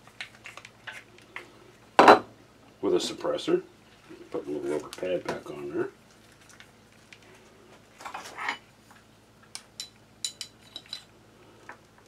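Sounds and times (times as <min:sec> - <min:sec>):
light metallic clicks and clinks: 0:09.6 - 0:11.1.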